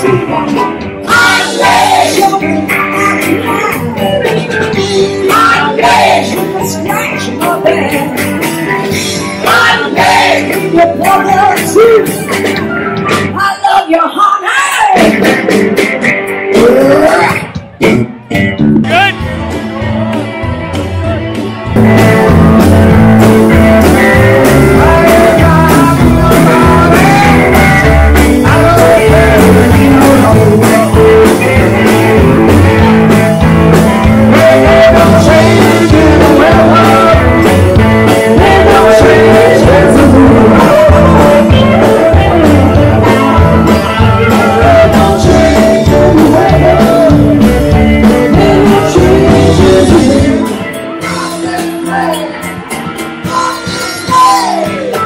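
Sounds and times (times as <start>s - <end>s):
man singing into microphone: 0.0s - 8.2s, 9.4s - 12.1s, 23.9s - 32.9s, 34.2s - 52.5s
live rock band playing: 0.0s - 55.0s.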